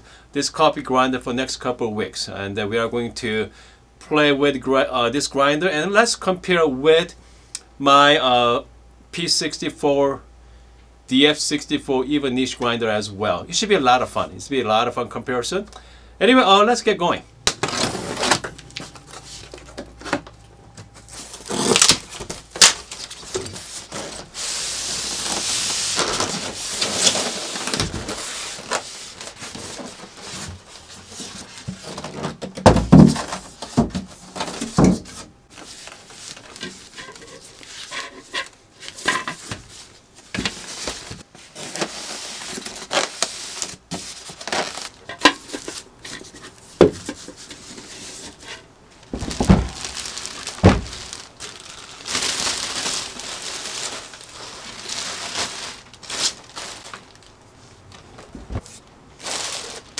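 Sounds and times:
plastic wrap rustling: 17.4 - 59.9
polystyrene foam packaging handled: 17.5 - 59.9
packing tape cut and pulled off: 21.2 - 29.6, 41.6 - 45.0.

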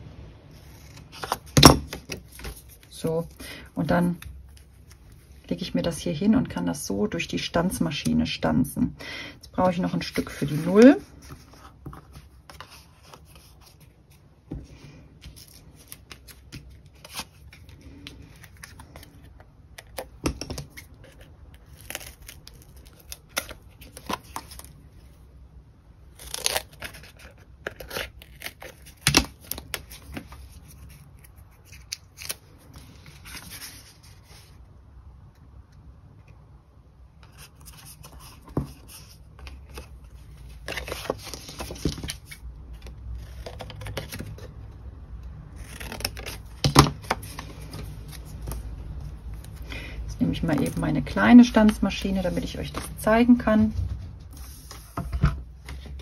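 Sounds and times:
paper rustling: 26.2 - 34.6, 37.2 - 44.5, 45.6 - 56.0.

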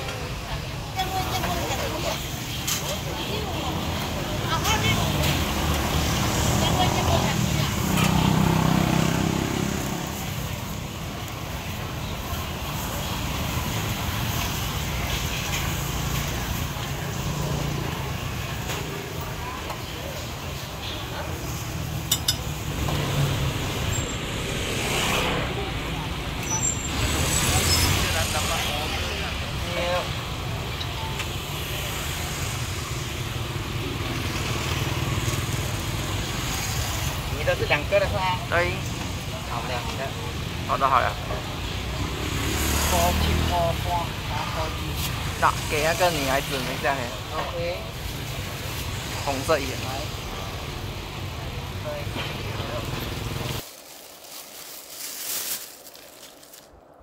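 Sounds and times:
street traffic noise: 0.0 - 57.0
motorcycle passing: 4.4 - 11.2, 42.0 - 43.8.

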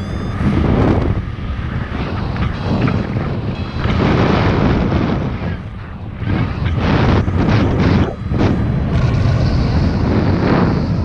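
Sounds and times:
variometer rising beeps: 0.0 - 8.5
wind rushing over microphone: 0.0 - 11.0.

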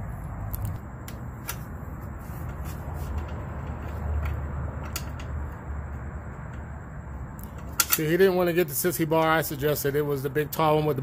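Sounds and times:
steady low rumble: 0.0 - 9.6
small metal parts clicking: 7.4 - 8.3.

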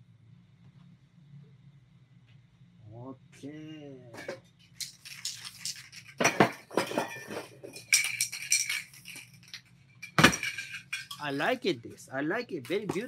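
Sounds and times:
spray can rattling: 4.6 - 6.6, 7.8 - 11.5.

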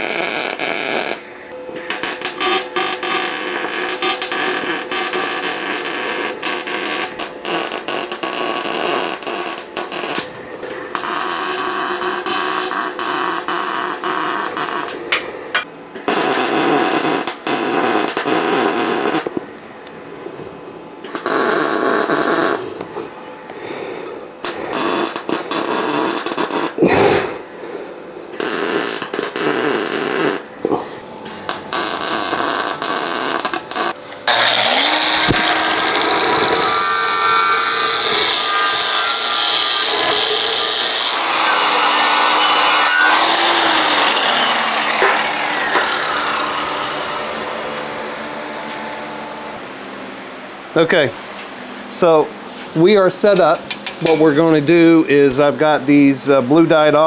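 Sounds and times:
crackling welding bursts: 0.0 - 15.2, 16.0 - 19.4, 21.0 - 22.7, 24.4 - 26.8, 28.3 - 30.5, 31.3 - 49.6
electric motor spinning: 28.4 - 50.5.

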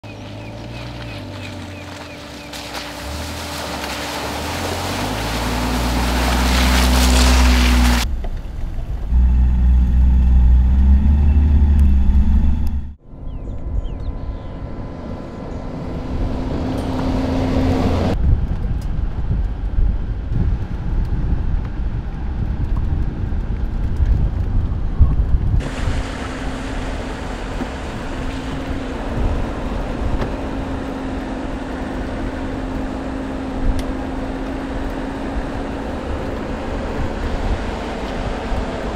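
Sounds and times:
car engine accelerating: 0.1 - 18.2.

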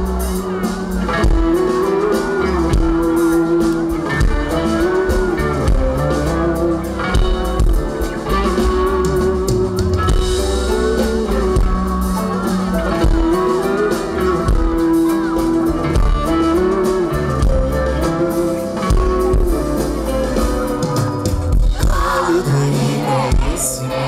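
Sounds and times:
live rock band playing: 0.0 - 24.0.

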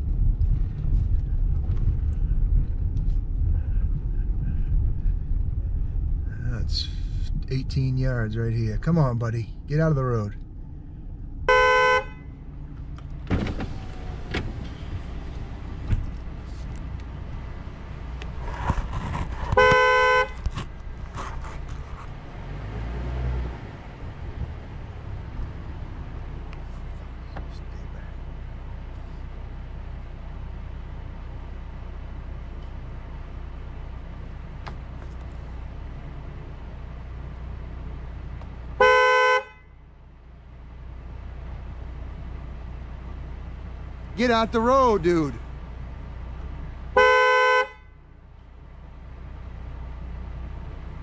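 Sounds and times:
vehicle engine idling: 0.0 - 51.0
vehicle horn honk: 11.5 - 12.4, 19.5 - 20.5, 38.8 - 39.8, 47.0 - 48.0.

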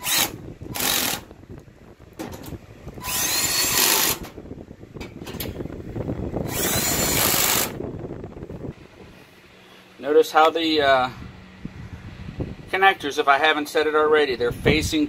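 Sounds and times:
cordless drill whining: 0.0 - 1.3, 3.0 - 4.2, 6.4 - 7.8.

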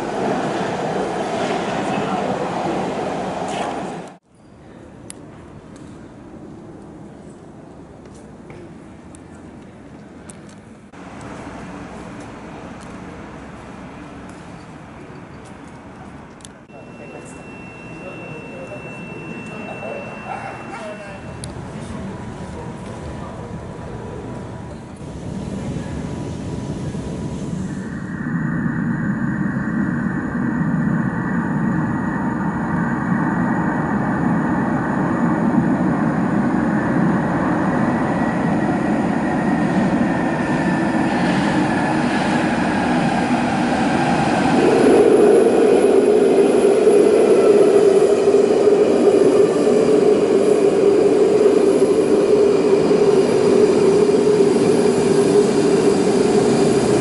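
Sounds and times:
train rumble: 0.0 - 4.2, 5.2 - 57.0
loud steady tone: 16.7 - 22.0, 25.1 - 41.0.

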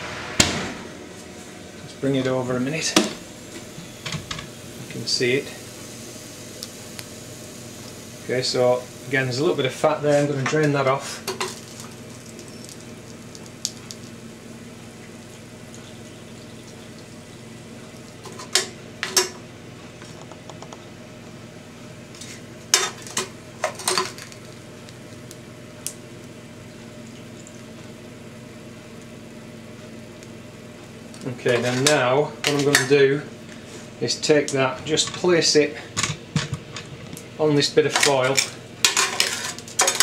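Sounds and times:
steady low hum: 0.0 - 40.0
utensils clinking on metal tray: 37.9 - 40.0.

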